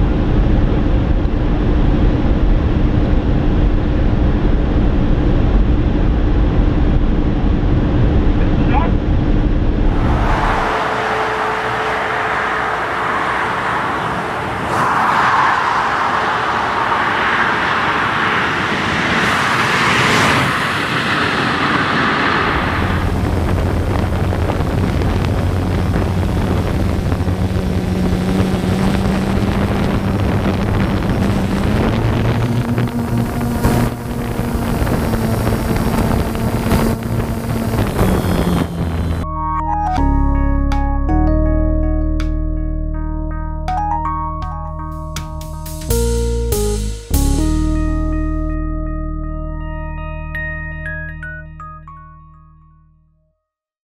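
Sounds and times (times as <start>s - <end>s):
wind and road noise in car: 0.0s - 39.3s
drone propellers humming: 9.1s - 40.3s.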